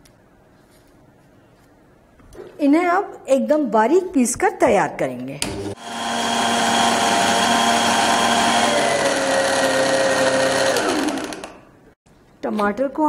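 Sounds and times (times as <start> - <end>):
mixer grinder motor whine: 5.7 - 11.8.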